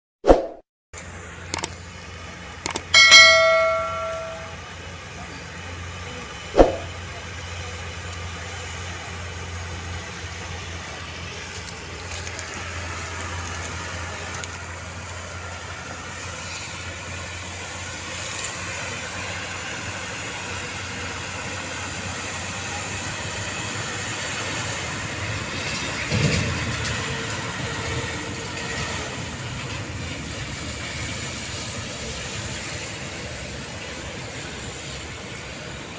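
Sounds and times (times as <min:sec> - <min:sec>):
trucks driving on dirt road: 0:01.0 - 0:35.9
short chime: 0:02.9 - 0:04.6
button click: 0:06.6 - 0:06.9.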